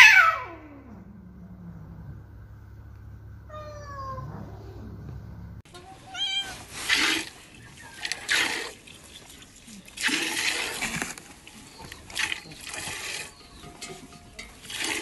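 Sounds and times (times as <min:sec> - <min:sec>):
cat meowing: 0:03.5 - 0:04.8, 0:05.8 - 0:06.6
milk squirting: 0:06.7 - 0:13.6, 0:14.6 - 0:15.0.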